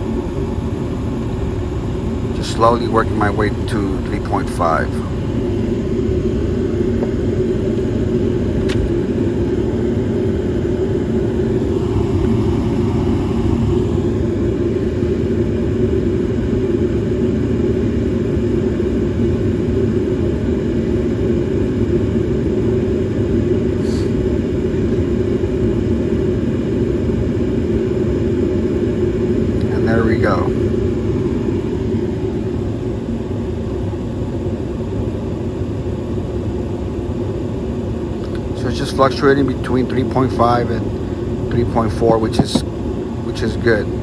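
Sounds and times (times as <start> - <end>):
gas furnace rumbling: 0.0 - 44.0.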